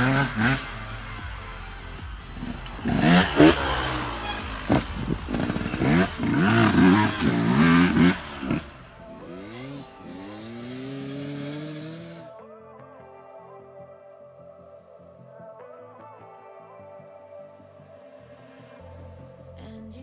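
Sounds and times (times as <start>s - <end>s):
two-stroke engine revving: 0.0s - 12.3s.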